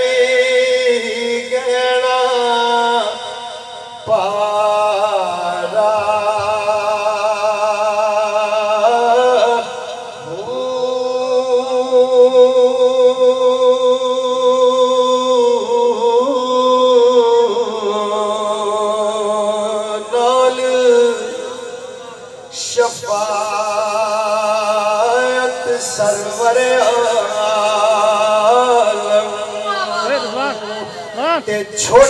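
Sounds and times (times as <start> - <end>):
man singing into a microphone: 0.0 - 32.0.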